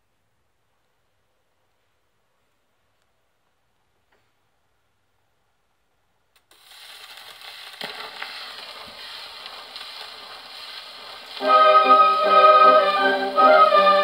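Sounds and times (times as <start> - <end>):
record surface hiss and crackle: 0.0 - 14.0
gramophone instrumental music: 11.4 - 14.0.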